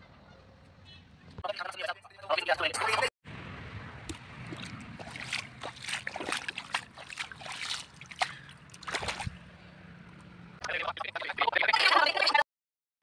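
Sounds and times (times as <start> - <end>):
bare feet splashing in mud water: 4.0 - 9.5.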